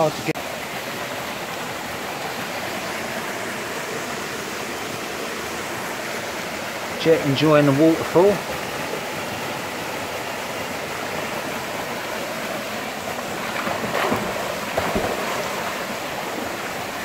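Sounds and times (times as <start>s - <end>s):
waterfall pouring into pool: 0.0s - 17.0s
dog splashing through water: 13.5s - 15.8s.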